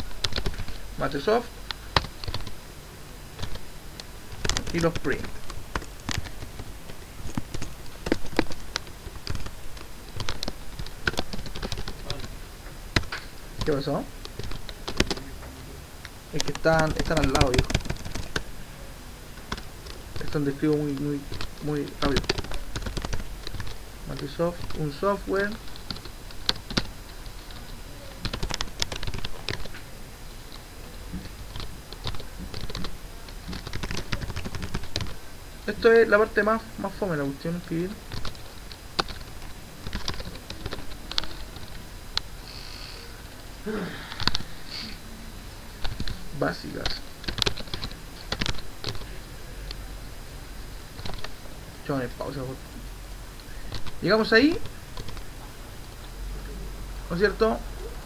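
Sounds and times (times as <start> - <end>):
typing on computer keyboard: 0.0 - 0.8, 2.0 - 2.6, 3.4 - 3.6, 4.3 - 12.3, 13.0 - 15.3, 16.4 - 18.4, 19.5 - 26.9, 28.2 - 29.8, 31.5 - 35.2, 38.1 - 41.8, 45.8 - 46.2, 46.8 - 49.1, 51.0 - 51.3, 53.7 - 55.2.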